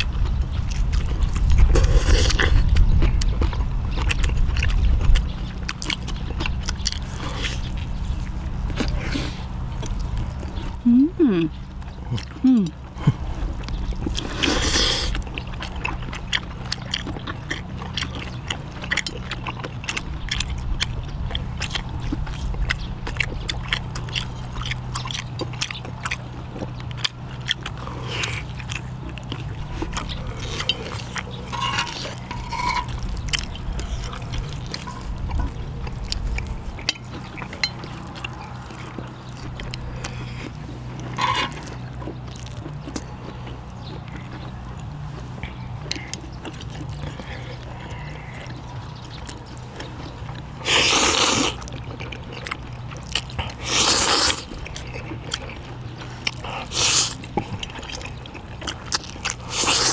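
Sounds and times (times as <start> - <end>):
people chewing: 0.0 - 59.9
steady low hum: 0.0 - 59.9
utensils scraping dishes: 31.4 - 33.0, 41.1 - 41.7.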